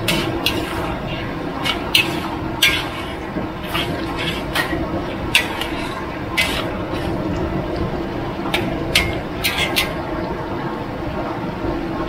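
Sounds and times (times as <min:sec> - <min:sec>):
spatula scraping metal wok: 0:00.0 - 0:07.4, 0:08.5 - 0:10.1
steady noisy background: 0:00.0 - 0:12.0.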